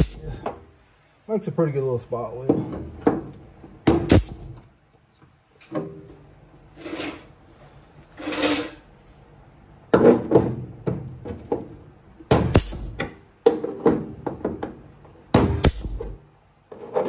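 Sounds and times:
air hissing: 0.0s - 0.4s, 4.0s - 4.6s, 12.4s - 13.0s, 15.5s - 16.0s
pneumatic hole punch snapping: 3.9s - 4.6s, 12.3s - 13.1s, 15.3s - 16.2s.

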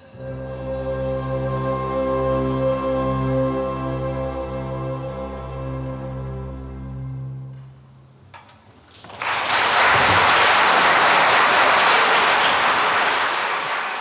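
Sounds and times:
audience applause: 9.0s - 14.0s.

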